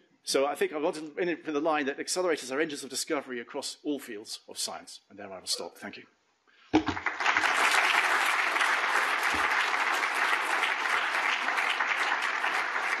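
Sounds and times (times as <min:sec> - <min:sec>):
large audience clapping: 0:06.8 - 0:13.0.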